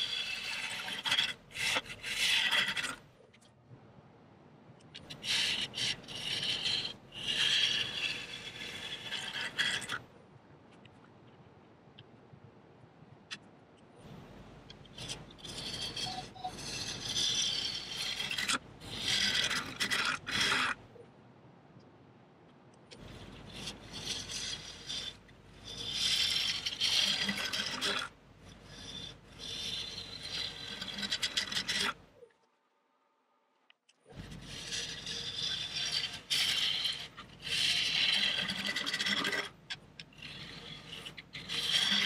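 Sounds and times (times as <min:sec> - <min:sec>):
gouge scraping wood: 0:00.0 - 0:03.1, 0:05.0 - 0:10.0, 0:14.1 - 0:20.8, 0:22.9 - 0:32.1, 0:34.1 - 0:42.0.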